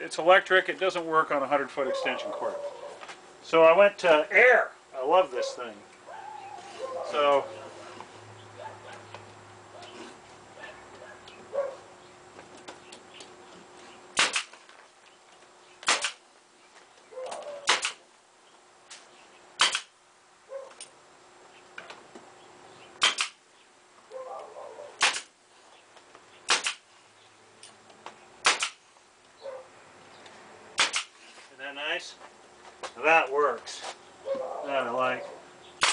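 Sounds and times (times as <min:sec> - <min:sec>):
nail gun firing into plywood: 0:14.2 - 0:14.6, 0:15.8 - 0:16.2, 0:17.6 - 0:18.0, 0:19.6 - 0:20.0, 0:23.0 - 0:23.4, 0:25.0 - 0:25.4, 0:26.5 - 0:26.8, 0:28.4 - 0:28.8, 0:30.8 - 0:31.2.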